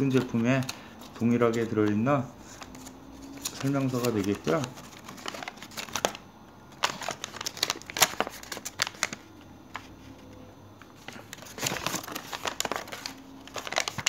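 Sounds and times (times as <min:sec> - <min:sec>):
paper crinkling and rustling: 0:00.0 - 0:14.0.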